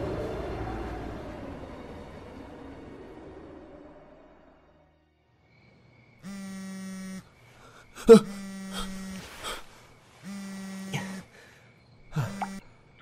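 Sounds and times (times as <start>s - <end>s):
mobile phone vibrating: 6.2s - 7.3s, 8.0s - 11.4s, 12.2s - 12.6s
person breathing: 7.5s - 10.0s, 11.2s - 12.4s.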